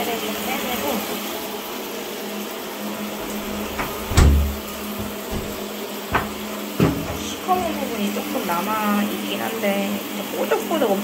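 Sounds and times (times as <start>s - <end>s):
tap water running into bathtub: 3.0s - 8.7s
thud: 3.2s - 7.7s
small knock: 3.2s - 7.8s.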